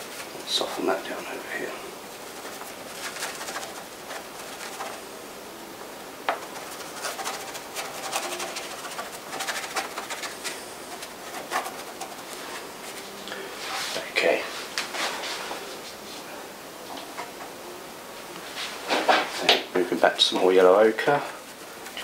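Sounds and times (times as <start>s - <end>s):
paintbrush scrubbing on canvas: 0.2s - 5.1s, 6.4s - 15.9s, 20.9s - 22.0s.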